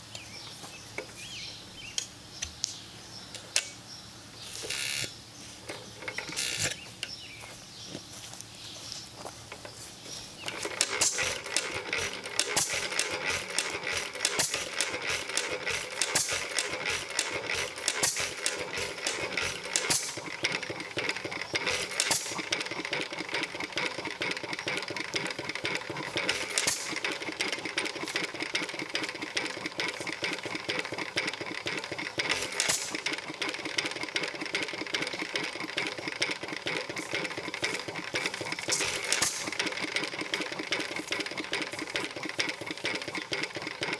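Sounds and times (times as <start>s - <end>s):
engine valve gear clatter: 10.5s - 43.9s.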